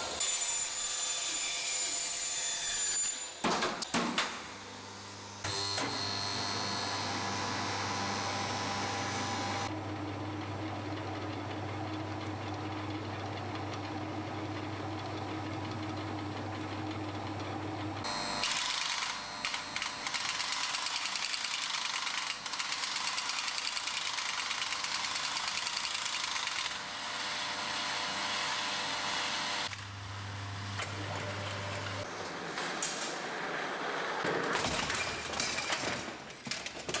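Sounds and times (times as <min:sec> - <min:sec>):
electric motor hum: 0:04.7 - 0:20.5.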